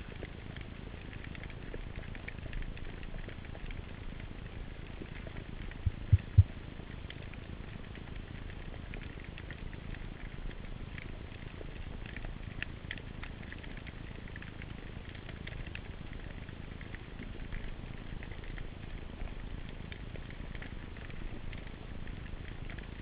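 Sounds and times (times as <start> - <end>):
faint clicks: 0.0 - 23.0
dull low thumps: 5.8 - 6.6.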